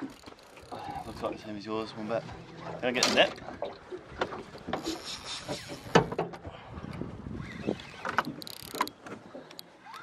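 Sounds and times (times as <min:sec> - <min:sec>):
wind and water hiss: 0:04.2 - 0:09.5
fishing reel clicks and knocks: 0:08.1 - 0:10.0.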